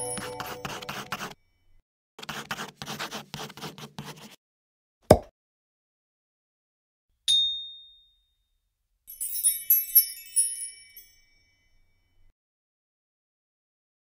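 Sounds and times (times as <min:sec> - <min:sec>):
sparkling chime tinkles: 0:00.0 - 0:00.7, 0:09.1 - 0:12.3
bright ding: 0:00.0 - 0:01.2.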